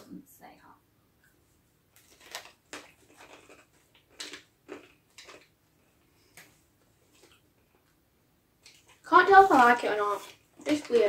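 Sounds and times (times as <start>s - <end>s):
crunchy snack chewing: 2.0s - 6.0s.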